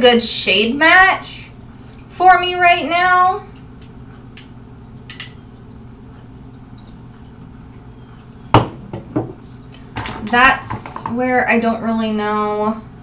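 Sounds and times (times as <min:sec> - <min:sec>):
plastic containers knocking together: 0:10.0 - 0:11.2.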